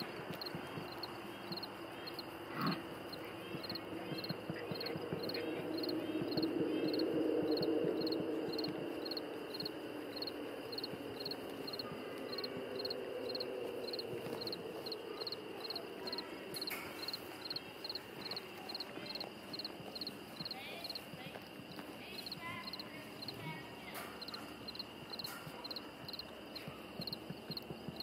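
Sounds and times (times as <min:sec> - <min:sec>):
crickets chirping: 0:00.0 - 0:28.0
insect trill: 0:00.0 - 0:28.0.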